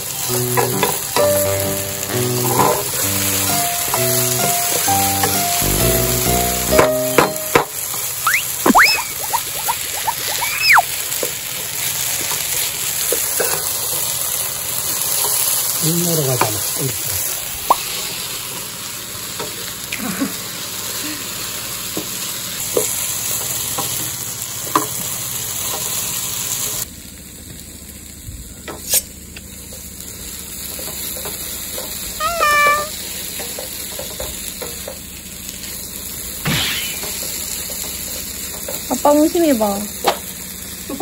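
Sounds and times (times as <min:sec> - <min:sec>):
food sizzling: 0:00.0 - 0:28.2, 0:28.8 - 0:41.0
dog whining: 0:08.2 - 0:10.9, 0:32.2 - 0:33.0.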